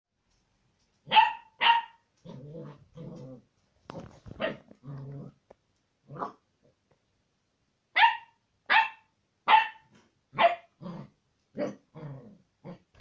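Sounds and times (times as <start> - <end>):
puppy yapping barks: 1.0 - 2.1, 4.3 - 4.7, 7.9 - 10.8
puppy growling: 2.2 - 5.4, 10.8 - 13.0.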